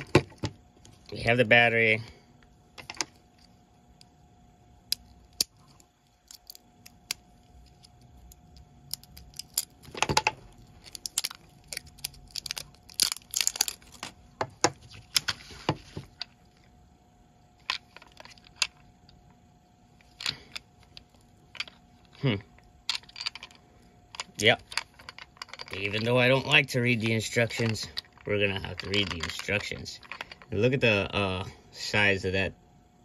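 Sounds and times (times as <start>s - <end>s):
plastic wrapping crinkling and tearing: 10.8s - 14.1s.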